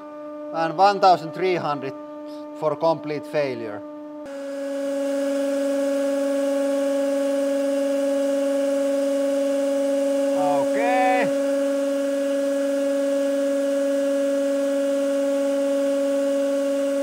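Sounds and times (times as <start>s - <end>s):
hydraulic pump two-tone hum: 4.3s - 17.0s.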